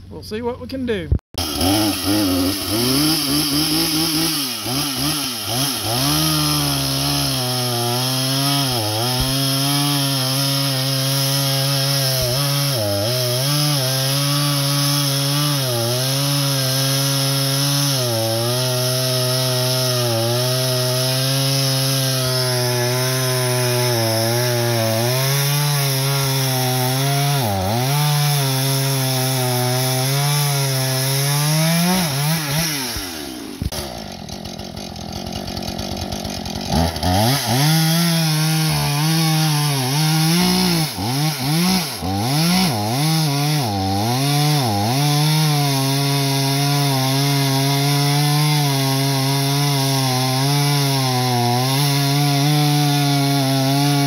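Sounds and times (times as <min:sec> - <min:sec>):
chainsaw cutting wood: 0:01.4 - 0:54.0.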